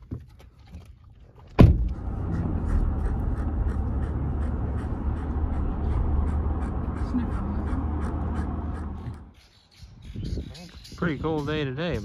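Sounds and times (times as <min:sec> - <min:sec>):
road and wind noise in vehicle: 0:00.0 - 0:12.0
sharp thump: 0:01.6 - 0:02.0.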